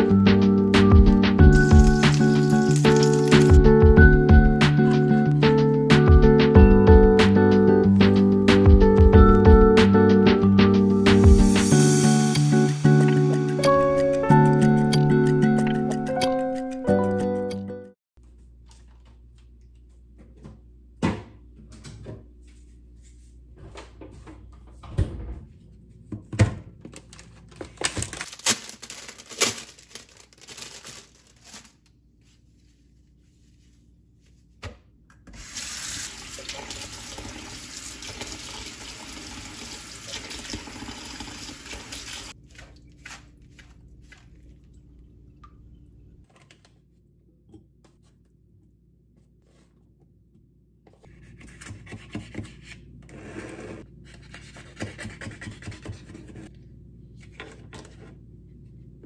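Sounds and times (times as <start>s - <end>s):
plastic-wrapped groceries rustling: 1.6s - 3.3s, 26.8s - 33.7s
kitchen tap running: 35.4s - 42.8s.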